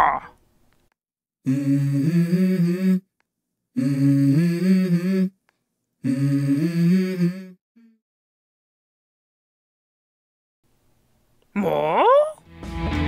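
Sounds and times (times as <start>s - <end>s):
person humming a tune: 1.4s - 3.1s, 3.8s - 5.4s, 6.0s - 8.0s.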